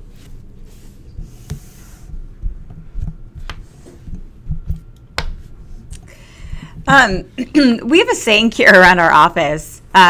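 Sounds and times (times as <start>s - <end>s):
hum: 0.0s - 8.0s
low irregular thumping: 1.4s - 5.6s.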